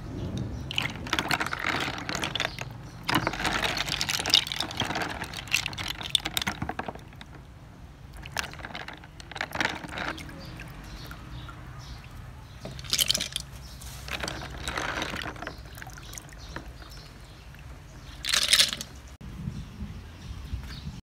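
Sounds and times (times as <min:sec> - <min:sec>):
water sloshing and splashing: 0:00.0 - 0:19.2.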